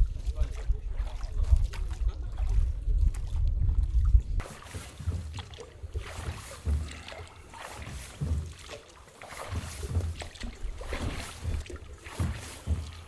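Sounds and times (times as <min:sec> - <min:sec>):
water splashing from oar strokes: 0:00.0 - 0:13.0
oars knocking: 0:04.4 - 0:13.0.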